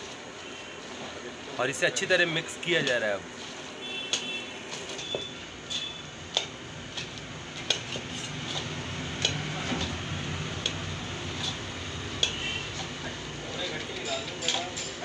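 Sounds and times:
peanuts stirred in syrup: 0:01.9 - 0:15.0
stirrer knocking on metal pan: 0:05.0 - 0:15.0.

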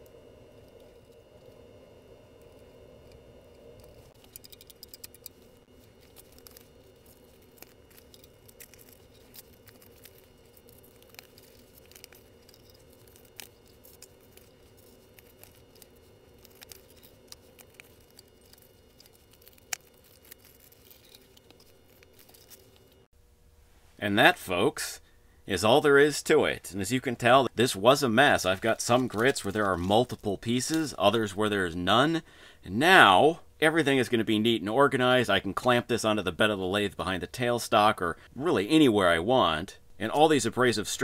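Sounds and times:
faint steady hum: 0:00.0 - 0:41.0
paper rustling: 0:04.0 - 0:23.1.

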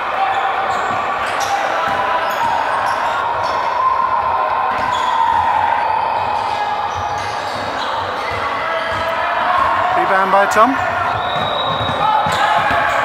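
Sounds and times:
hubbub of hall: 0:00.0 - 0:13.0
basketball bouncing on wooden floor: 0:11.1 - 0:13.0.

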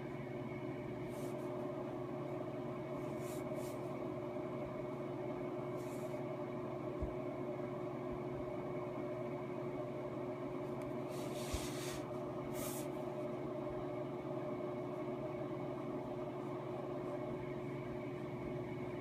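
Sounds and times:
steady machine hum: 0:00.0 - 0:19.0
soft hisses: 0:11.1 - 0:12.0.

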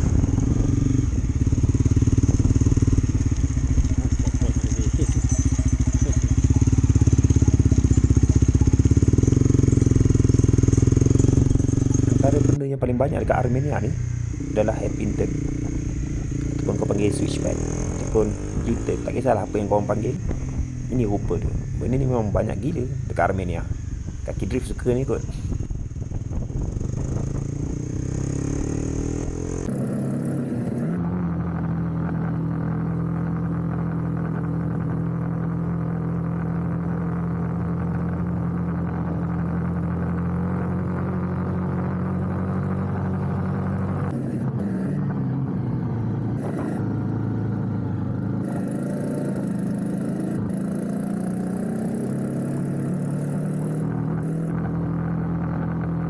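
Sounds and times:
motorcycle engine cruising: 0:00.0 - 0:56.0.

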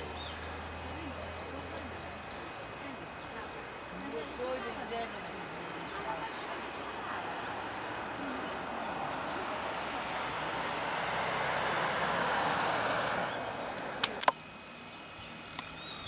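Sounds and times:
car driving past: 0:04.7 - 0:14.2
sharp clicks: 0:13.7 - 0:14.4.

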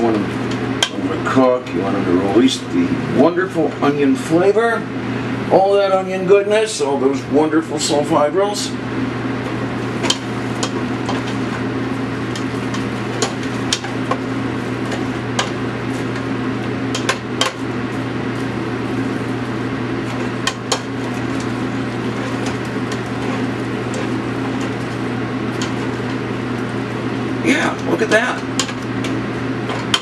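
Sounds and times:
steady hum: 0:00.0 - 0:30.0
onions frying in a pan: 0:08.9 - 0:30.0
utensil striking a pan: 0:16.9 - 0:17.6.

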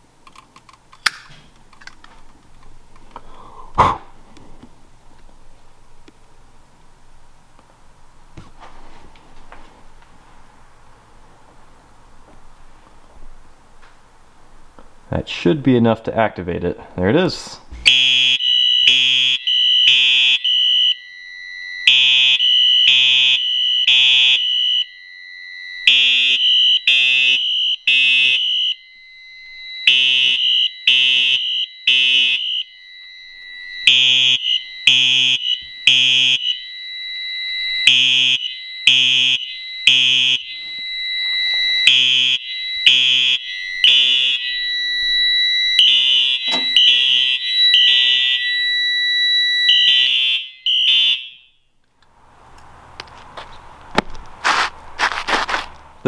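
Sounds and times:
fire alarm horn blasts: 0:17.8 - 0:51.8
steady high tone: 0:17.9 - 0:51.5.

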